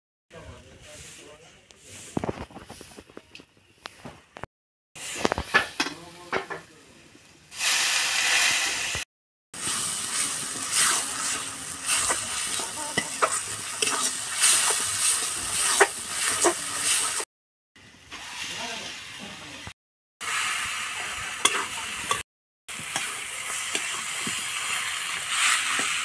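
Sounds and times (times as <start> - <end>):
food sizzling in a pan: 5.0 - 26.0
metal spatula scraping pan: 10.0 - 17.2.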